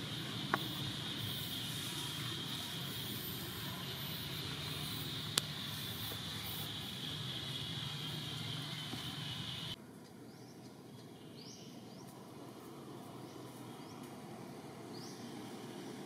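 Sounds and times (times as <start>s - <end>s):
high insect drone: 0.0s - 9.8s.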